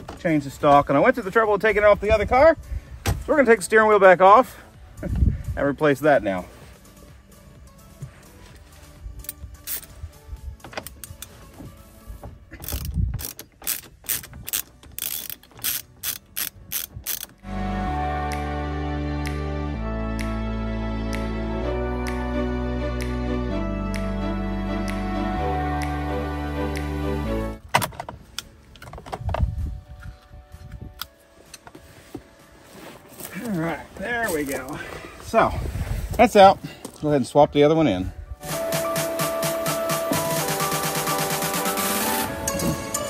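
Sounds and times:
background music: 0:00.0 - 0:43.0
ratchet wrench clicking: 0:12.6 - 0:17.4.

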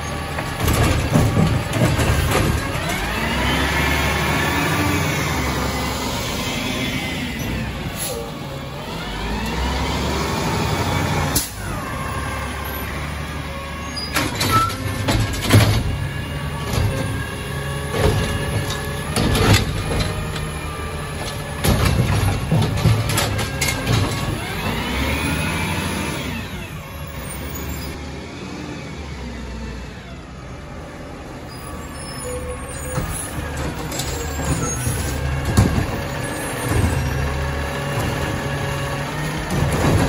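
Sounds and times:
hydraulic arm clanking and banging: 0:00.0 - 0:05.7, 0:13.3 - 0:28.0, 0:32.3 - 0:40.0
diesel engine revving: 0:00.0 - 0:40.0.

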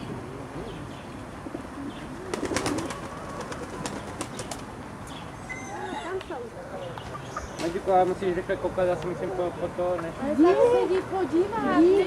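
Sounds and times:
pigeons cooing: 0:00.6 - 0:04.7.

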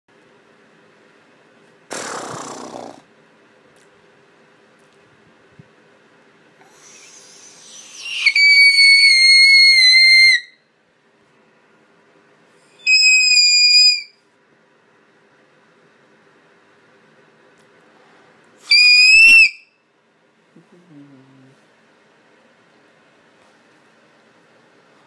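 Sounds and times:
boy screaming high-pitched squeal: 0:07.8 - 0:10.5, 0:12.9 - 0:14.1, 0:18.7 - 0:19.6.

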